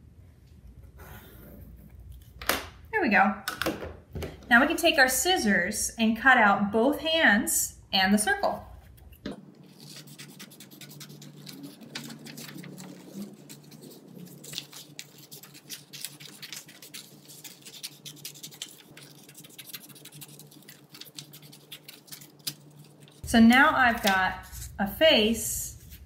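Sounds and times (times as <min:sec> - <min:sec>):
paper rustling: 0:09.3 - 0:23.2
scissors snipping paper: 0:09.6 - 0:24.7.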